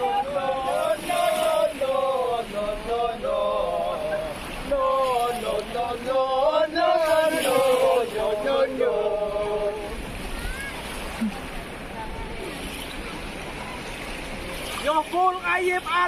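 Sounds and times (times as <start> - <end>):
voices chanting: 0.0 - 10.1.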